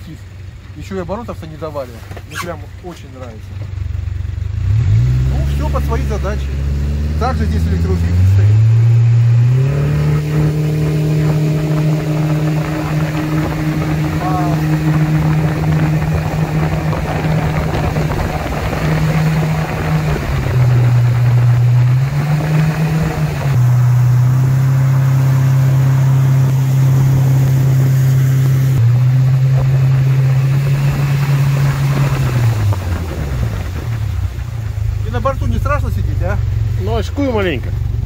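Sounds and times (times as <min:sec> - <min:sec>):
outboard boat engine: 0:00.0 - 0:38.0
water and wind rushing: 0:06.6 - 0:36.0.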